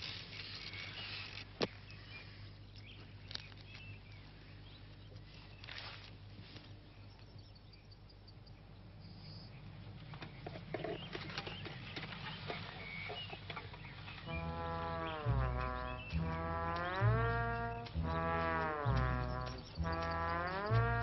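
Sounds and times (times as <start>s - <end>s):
brass instrument low sliding note: 14.3s - 21.0s.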